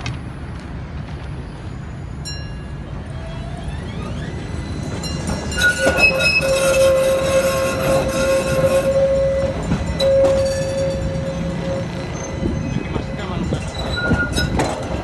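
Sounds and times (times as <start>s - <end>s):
tram rumbling past: 0.0s - 15.0s
wheels squealing on curve: 3.2s - 14.9s.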